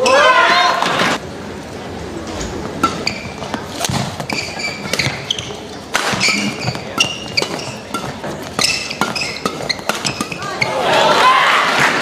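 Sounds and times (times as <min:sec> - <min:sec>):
shoes squeaking on court: 0:02.3 - 0:11.0
rackets smacking shuttlecock: 0:02.7 - 0:10.7.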